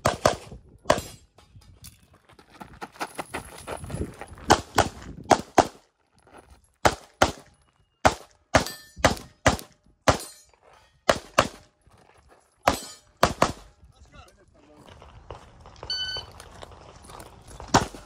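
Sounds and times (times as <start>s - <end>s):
rapid pistol fire: 12.7s - 13.6s.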